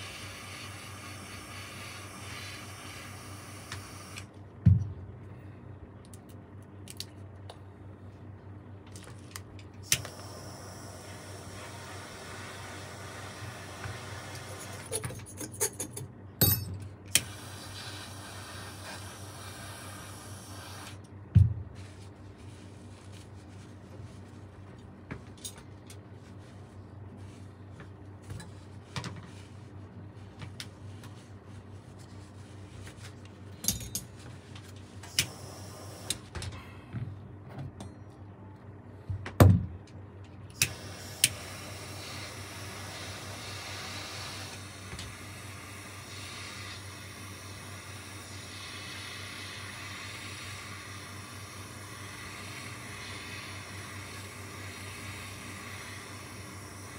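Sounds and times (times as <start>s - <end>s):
steady hiss: 17.2s - 21.0s, 40.6s - 56.9s.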